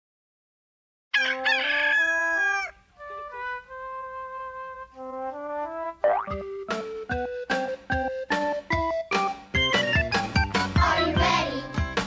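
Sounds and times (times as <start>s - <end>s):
rooster crowing: 1.1s - 2.9s.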